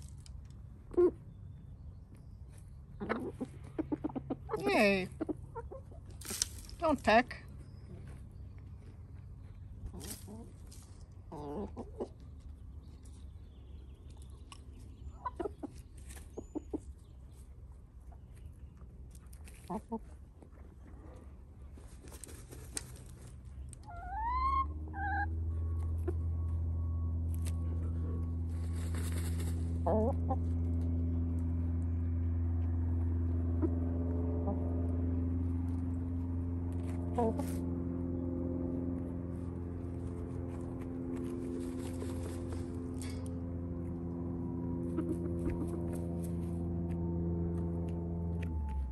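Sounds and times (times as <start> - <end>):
low motor hum: 0.0 - 48.9
hens clucking: 2.9 - 6.2, 11.3 - 12.6, 14.5 - 17.0, 19.2 - 21.2, 28.8 - 30.6, 44.8 - 46.3
hens squawking: 3.0 - 6.1, 23.8 - 25.4
dirt being tossed: 6.2 - 6.8.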